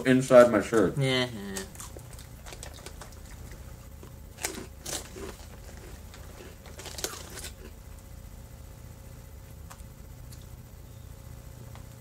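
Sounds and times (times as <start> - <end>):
low steady hum: 0.0 - 12.0
plastic snack bag crinkling: 4.4 - 7.7.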